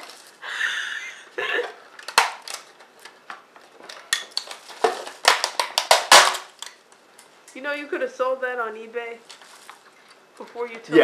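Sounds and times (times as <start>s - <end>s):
tape crinkling rustle: 0.0s - 0.5s, 1.9s - 7.3s, 9.2s - 10.7s.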